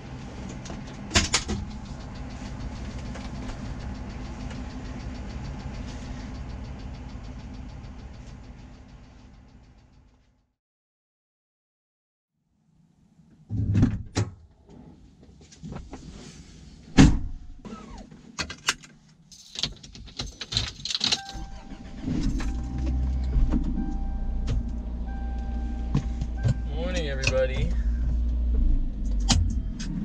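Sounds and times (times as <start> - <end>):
truck engine starting and idling: 0.0 - 10.3, 20.6 - 30.0.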